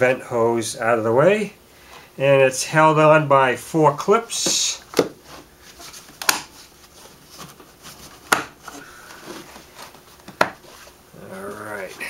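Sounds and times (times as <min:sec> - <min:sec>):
quiet handling sounds: 0:04.4 - 0:12.0.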